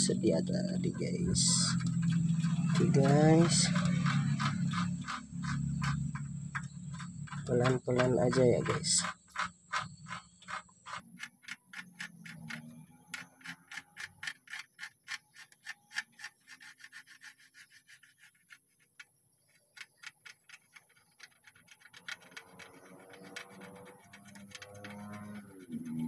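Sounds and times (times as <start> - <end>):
pencil scratching on paper: 0.0 - 19.0.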